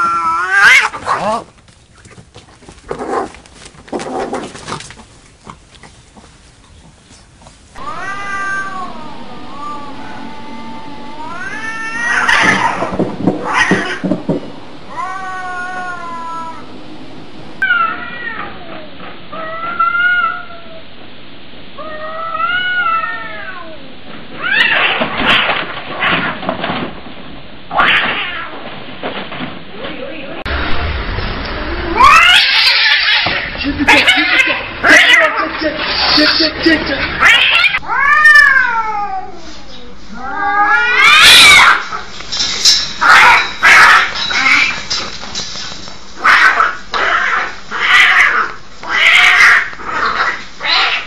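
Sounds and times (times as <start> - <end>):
cat yowling: 0.0 - 1.4, 7.8 - 14.2, 14.9 - 16.8, 32.0 - 35.4, 37.2 - 39.4, 40.2 - 42.0
cats yowling in a fight: 0.0 - 1.5, 7.8 - 14.3, 14.9 - 16.7, 17.6 - 20.8, 21.8 - 26.4, 27.7 - 28.6, 31.9 - 36.4, 37.2 - 42.1, 43.0 - 44.8, 46.2 - 51.0
cat harsh bursts: 7.8 - 14.0.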